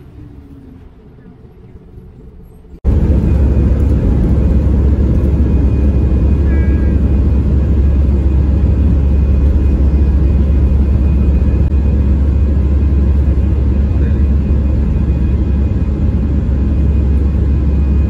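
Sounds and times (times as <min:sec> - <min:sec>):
jet airliner taking off: 0:00.0 - 0:18.0.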